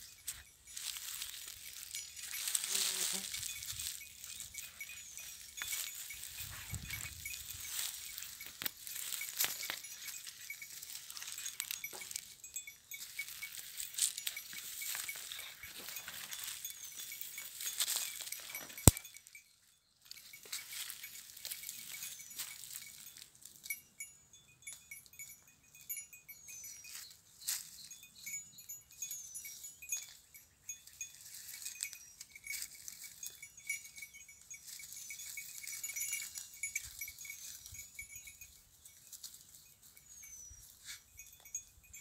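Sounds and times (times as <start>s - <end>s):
goat bells tinkling: 0.0s - 42.0s
dry brush crackling: 0.2s - 12.4s, 13.0s - 19.0s.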